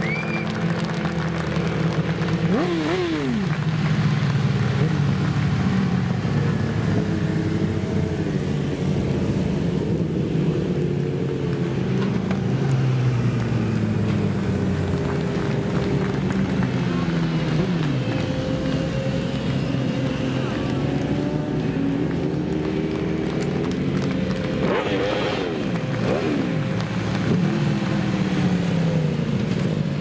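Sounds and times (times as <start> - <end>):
motorcycles riding past: 0.0 - 30.0
motorcycle engine revving: 1.6 - 30.0.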